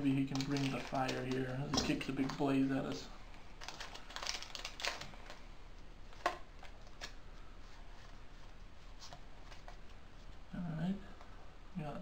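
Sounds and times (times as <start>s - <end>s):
foil wrapper crinkling and tearing: 0.2s - 1.6s, 3.6s - 5.4s.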